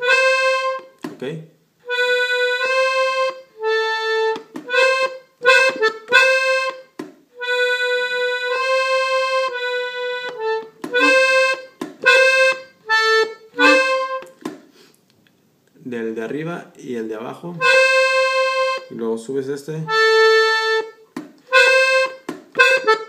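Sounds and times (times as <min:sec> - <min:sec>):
button accordion melody: 0:00.0 - 0:01.0, 0:01.8 - 0:14.4, 0:17.6 - 0:18.9, 0:19.8 - 0:23.0.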